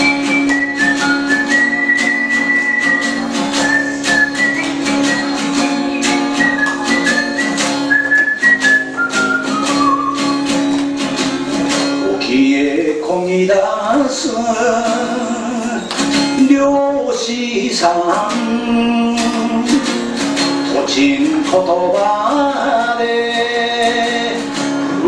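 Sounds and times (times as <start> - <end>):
high melody: 0.0 - 24.4
strummed guitar: 0.0 - 25.0
person singing: 12.0 - 25.0.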